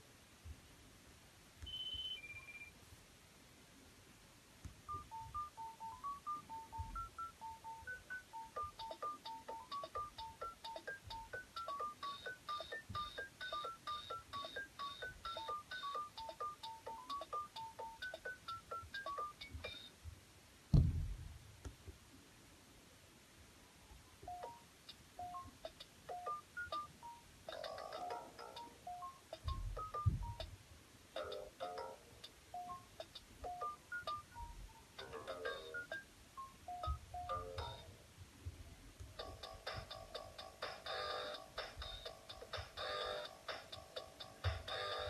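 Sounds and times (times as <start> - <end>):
toy phone beeping tune: 4.9 - 19.9, 24.3 - 24.6, 25.2 - 25.5, 26.1 - 30.5, 32.5 - 37.9
thump: 20.7 - 21.3.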